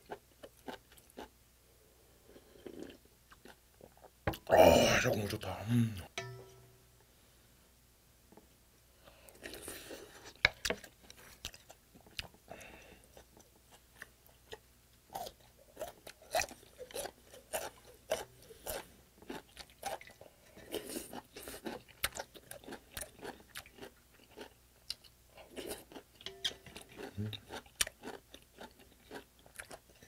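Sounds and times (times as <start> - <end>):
crunchy chewing: 9.4 - 30.0.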